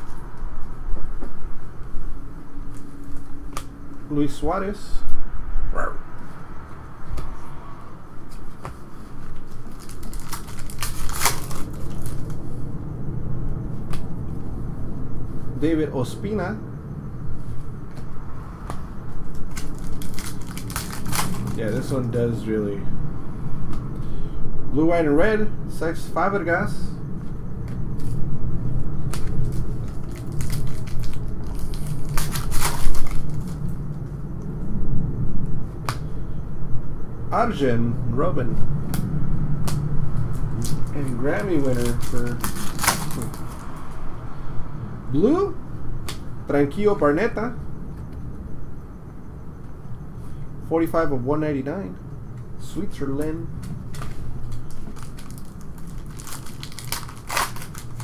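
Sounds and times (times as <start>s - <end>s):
trading cards crinkling and rustling: 8.3s - 12.4s, 19.2s - 22.2s, 29.0s - 33.8s, 39.6s - 43.9s, 53.5s - 58.0s
sharp crackles: 9.3s - 12.6s, 18.7s - 22.2s, 27.6s - 34.0s, 39.6s - 43.9s, 53.1s - 58.0s.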